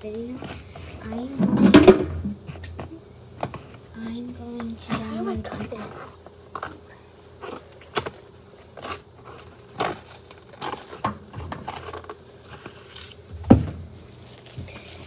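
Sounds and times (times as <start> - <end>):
plastic wrap rustling: 4.9 - 15.0.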